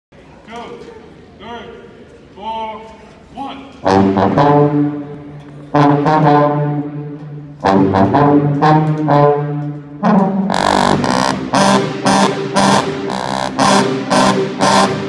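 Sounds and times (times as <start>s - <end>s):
sousaphones playing marching tune: 3.8s - 15.0s.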